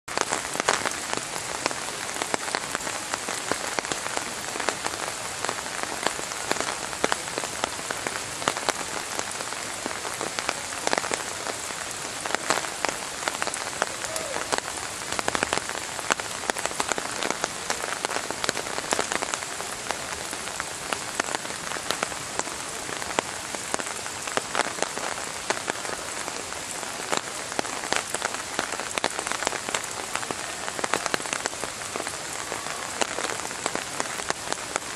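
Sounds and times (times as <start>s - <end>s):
close raindrop hits: 0.1s - 34.9s
steady rain hiss: 0.1s - 34.9s.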